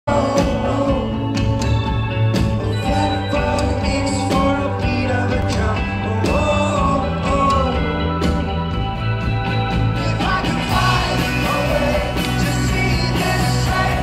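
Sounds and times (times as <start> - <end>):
man singing into microphone: 0.1 - 1.6, 2.7 - 8.3, 10.0 - 14.0
live rock band playing: 0.1 - 14.0.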